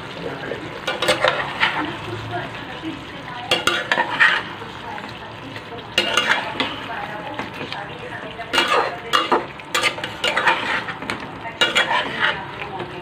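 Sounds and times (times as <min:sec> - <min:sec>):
light sizzle: 0:00.0 - 0:13.0
spatula scraping a pot: 0:00.9 - 0:01.9, 0:03.5 - 0:04.6, 0:06.0 - 0:06.9, 0:08.5 - 0:12.6.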